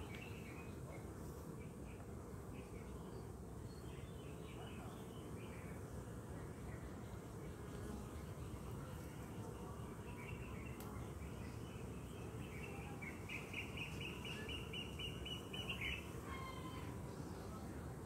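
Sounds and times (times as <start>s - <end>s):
bees humming: 0.0s - 18.0s
bird chirping: 9.6s - 17.4s.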